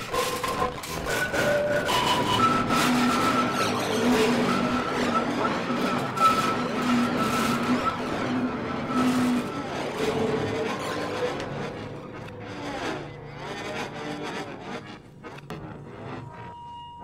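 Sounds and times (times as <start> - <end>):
low held tone: 15.4 - 17.0.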